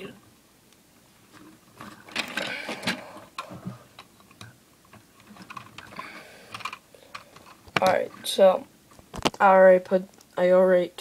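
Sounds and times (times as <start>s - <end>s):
plastic bricks clicking and rattling: 5.2s - 8.2s.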